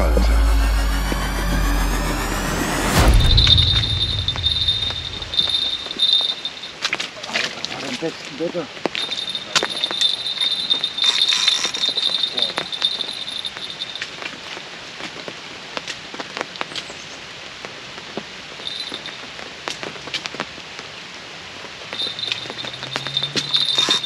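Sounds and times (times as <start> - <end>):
brief high rattle: 0.0 - 6.4
steady rain falling: 3.6 - 24.0.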